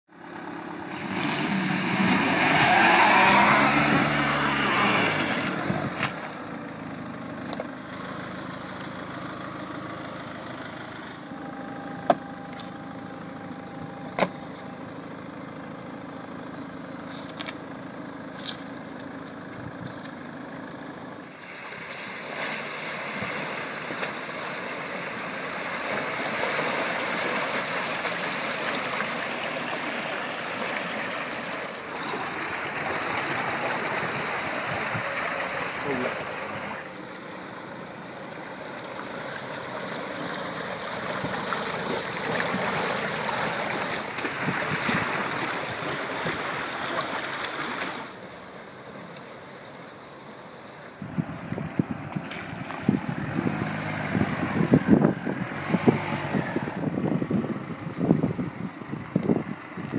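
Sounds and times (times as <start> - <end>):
car engine running: 0.1 - 59.9
water rushing and splashing: 21.3 - 49.4.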